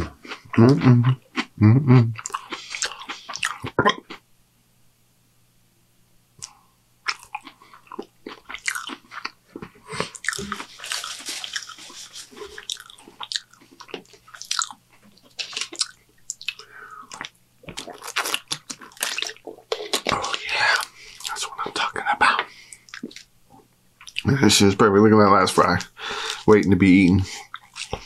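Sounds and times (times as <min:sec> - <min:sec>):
chewing crunchy food: 0:02.2 - 0:04.2, 0:06.4 - 0:21.8, 0:22.8 - 0:23.3, 0:24.0 - 0:24.3, 0:27.4 - 0:28.0.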